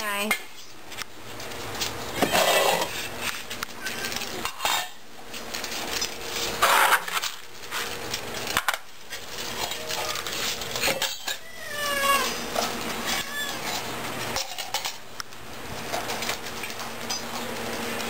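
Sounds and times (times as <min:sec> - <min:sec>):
bowls and dishes clattering: 0:02.1 - 0:03.0, 0:03.9 - 0:05.0, 0:09.4 - 0:11.5, 0:13.6 - 0:15.0
cat meowing: 0:11.3 - 0:12.4, 0:13.0 - 0:13.9.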